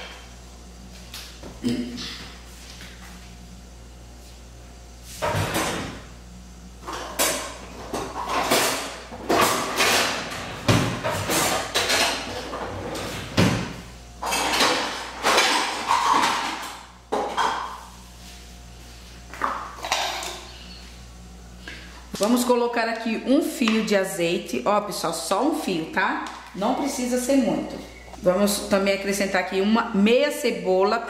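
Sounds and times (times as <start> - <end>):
dishes and utensils clattering: 6.8 - 10.4, 11.0 - 13.2, 14.2 - 17.8, 19.8 - 20.6.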